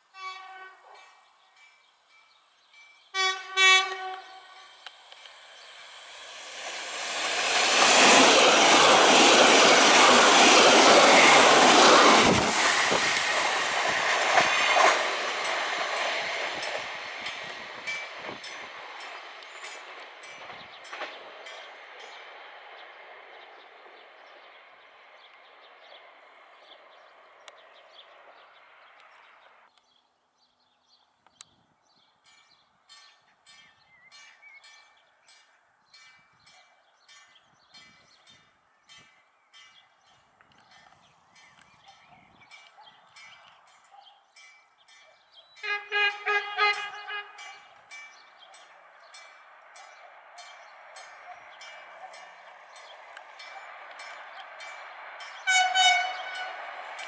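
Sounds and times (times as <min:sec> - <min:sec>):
railcar passing with wheel clatter: 0:00.0 - 0:29.8, 0:31.8 - 0:57.0.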